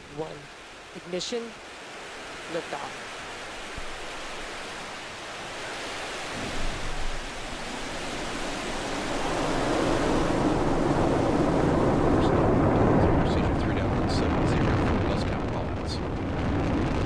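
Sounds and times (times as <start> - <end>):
rocket engines roaring: 9.0 - 17.0.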